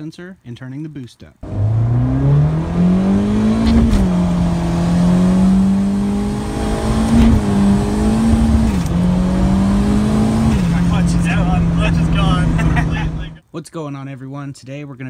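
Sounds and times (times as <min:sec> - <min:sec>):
turbocharged car engine revving: 0:01.4 - 0:13.4.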